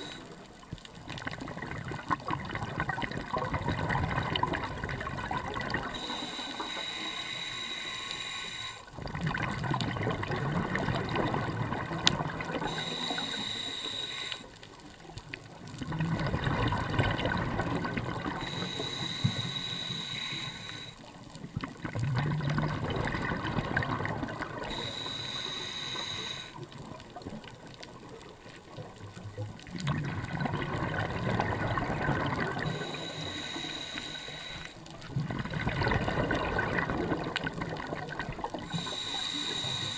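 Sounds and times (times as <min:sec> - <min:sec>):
regulator breathing hiss: 0:00.0 - 0:00.4, 0:05.8 - 0:08.9, 0:12.6 - 0:14.7, 0:18.4 - 0:21.1, 0:24.6 - 0:26.7, 0:32.6 - 0:35.0, 0:38.6 - 0:39.9
exhaled bubbles rushing: 0:01.1 - 0:06.0, 0:08.9 - 0:12.8, 0:15.7 - 0:18.6, 0:21.5 - 0:24.8, 0:29.6 - 0:32.9, 0:35.1 - 0:39.0.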